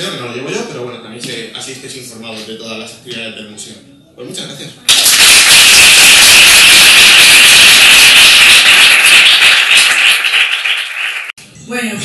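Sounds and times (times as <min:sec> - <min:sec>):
audience applauding: 0:04.9 - 0:11.4.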